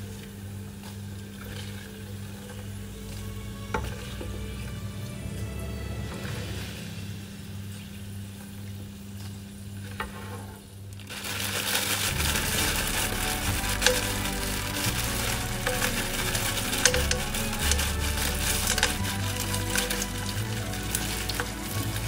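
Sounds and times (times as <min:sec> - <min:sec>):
oil sizzling with crackles: 0:06.1 - 0:22.0.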